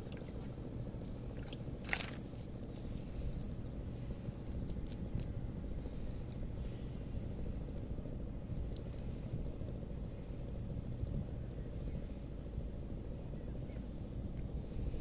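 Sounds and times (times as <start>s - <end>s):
steady low rumble: 0.0s - 15.0s
crackles of weeds picked from net: 1.0s - 3.6s.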